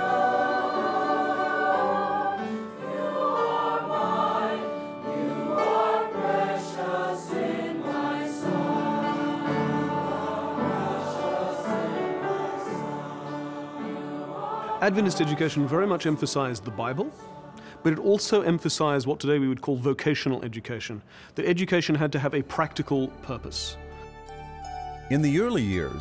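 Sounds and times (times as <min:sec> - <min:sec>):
choir singing slow sacred song: 0:00.0 - 0:19.1.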